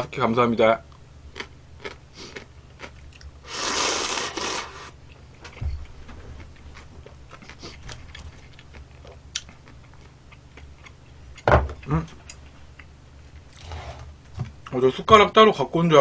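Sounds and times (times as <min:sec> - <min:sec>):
noodles slurped: 0:03.4 - 0:05.0
chewing with wet mouth clicks: 0:05.8 - 0:12.9.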